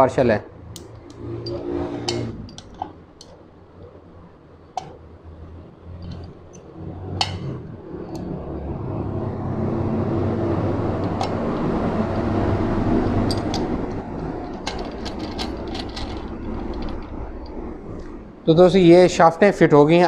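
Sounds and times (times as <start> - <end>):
low rumble: 5.1 - 19.5.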